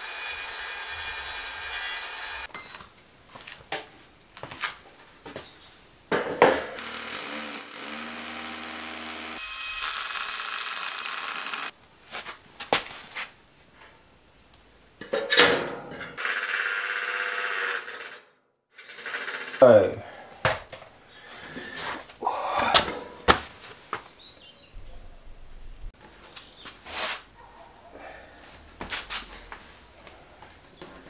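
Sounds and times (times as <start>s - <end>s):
cordless drill on steel: 0.0s - 2.5s, 6.8s - 11.8s.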